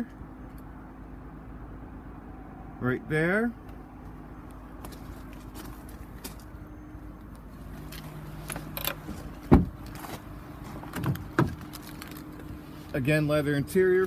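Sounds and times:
door shutting thump: 9.5 - 9.8.

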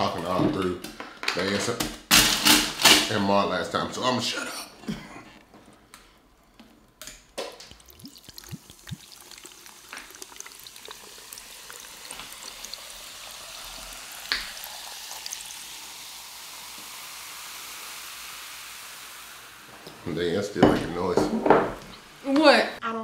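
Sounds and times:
drink sloshing in a tumbler: 7.6 - 12.8
short gurgles: 7.7 - 9.2
hiss: 11.5 - 20.1.

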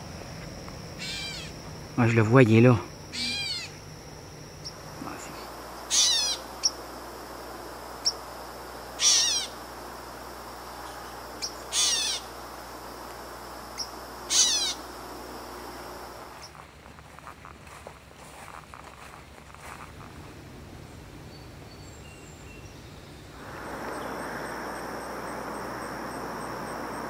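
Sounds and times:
catbird mewing call: 1.0 - 1.6, 3.1 - 3.8, 5.9 - 6.8, 9.0 - 9.6, 11.4 - 12.3, 14.3 - 14.8.

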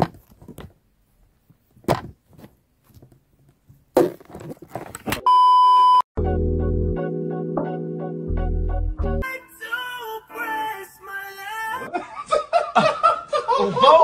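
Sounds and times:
electronic beep: 5.3 - 6.0
background music: 6.2 - 11.9.

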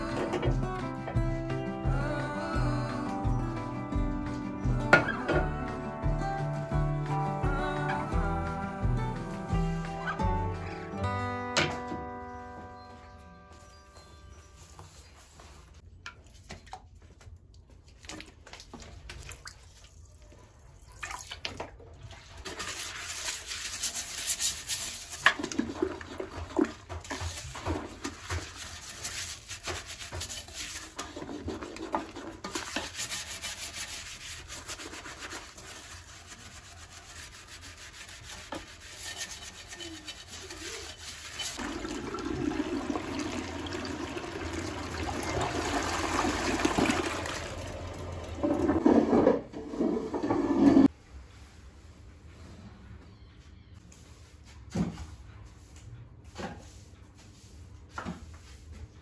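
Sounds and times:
surface scrubbing: 28.3 - 41.9, 48.4 - 50.9
water running and splashing: 37.6 - 48.5.

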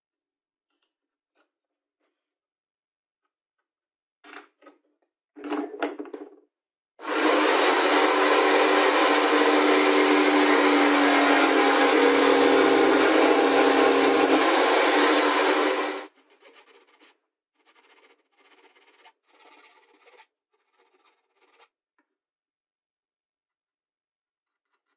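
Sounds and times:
jigsaw cutting wood board: 7.0 - 21.7.

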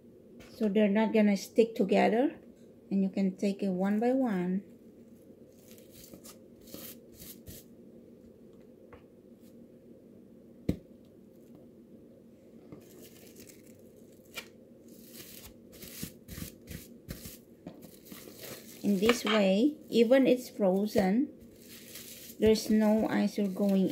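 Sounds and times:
plastic cling wrap rustling: 5.5 - 7.6, 12.8 - 23.9.

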